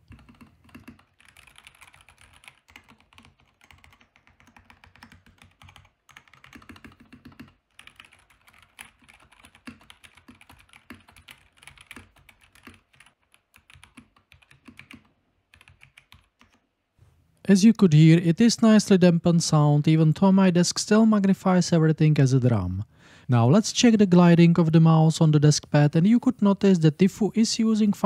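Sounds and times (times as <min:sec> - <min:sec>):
soft mechanical keyboard typing: 0:00.0 - 0:16.7.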